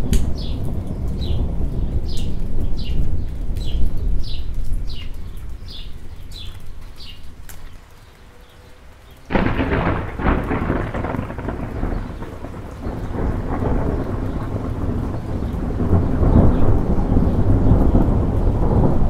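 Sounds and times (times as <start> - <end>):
thunder rumbling: 0.0 - 7.4, 9.3 - 19.0
steady rain: 0.0 - 19.0
bird chirping: 0.4 - 9.4
loud thunderclap: 9.3 - 19.0.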